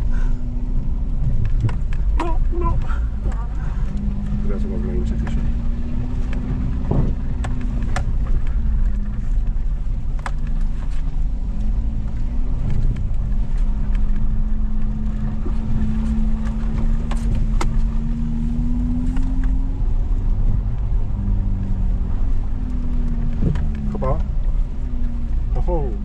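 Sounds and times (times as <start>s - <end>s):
engine running: 0.0s - 26.0s
sharp clicks and knocks: 1.2s - 4.4s, 6.2s - 11.3s, 22.7s - 24.4s.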